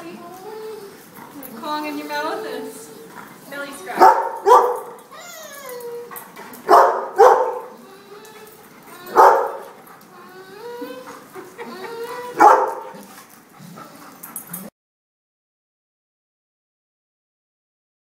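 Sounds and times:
dog whining: 0:00.0 - 0:14.7
dog barking: 0:04.0 - 0:05.0, 0:06.7 - 0:07.8, 0:09.1 - 0:09.8, 0:12.4 - 0:13.0.

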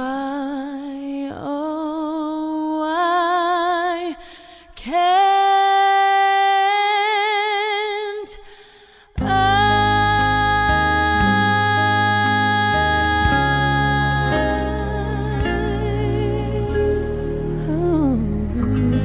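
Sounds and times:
woman singing with vibrato: 0:00.0 - 0:19.0
musical backing: 0:09.2 - 0:19.0.

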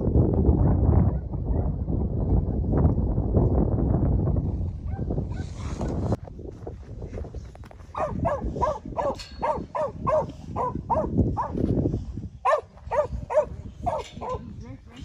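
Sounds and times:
dog barking: 0:04.9 - 0:05.5, 0:07.9 - 0:11.6, 0:12.4 - 0:14.5.

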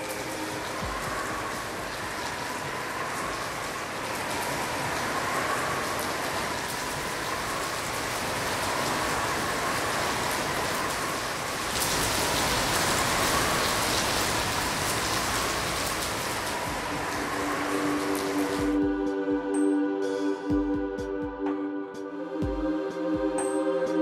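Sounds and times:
steady rain falling: 0:00.0 - 0:19.2.

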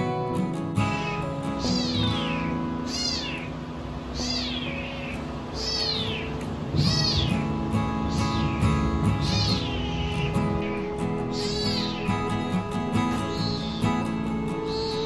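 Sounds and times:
kitten meowing: 0:01.0 - 0:07.4, 0:09.2 - 0:12.1, 0:13.3 - 0:13.9.

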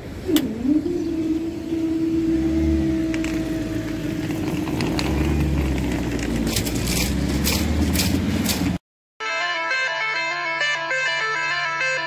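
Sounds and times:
car engine running low: 0:00.0 - 0:08.8
tyres clicking over rails: 0:03.0 - 0:08.8.

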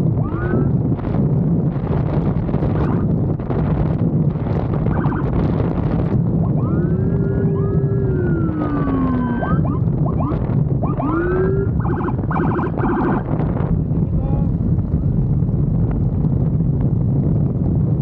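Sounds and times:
wind and road noise: 0:00.0 - 0:18.0
motorcycle siren: 0:02.8 - 0:03.1, 0:04.7 - 0:13.4.

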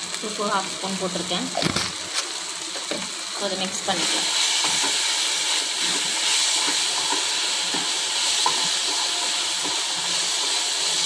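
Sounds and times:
food sizzling in a pan: 0:00.0 - 0:11.0
spatula scraping and tapping pan: 0:04.2 - 0:05.1, 0:05.8 - 0:11.0.

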